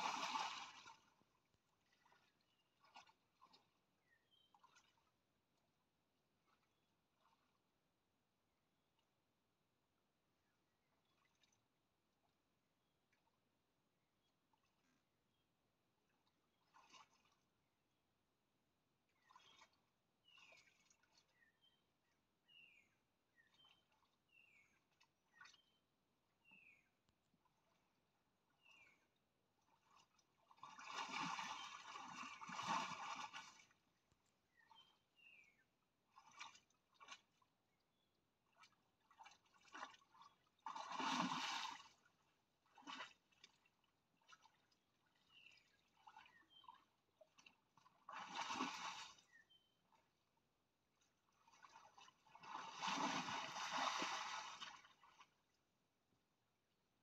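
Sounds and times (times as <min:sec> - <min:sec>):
splashing in shallow water: 0:00.0 - 0:05.4, 0:16.3 - 0:17.6, 0:19.1 - 0:21.7, 0:29.6 - 0:50.2, 0:51.0 - 0:55.6.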